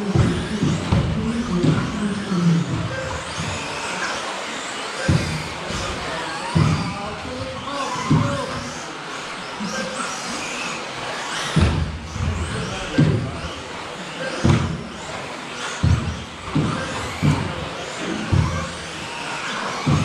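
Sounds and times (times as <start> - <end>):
low thuds: 0.0 - 3.6, 11.6 - 13.5, 14.4 - 15.1
electric motors whining: 0.0 - 20.0.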